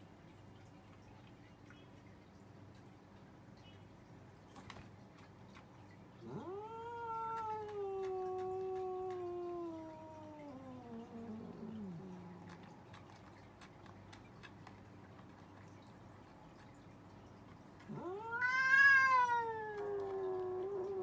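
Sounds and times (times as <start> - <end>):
cat yowling: 6.2 - 12.6, 17.8 - 21.0.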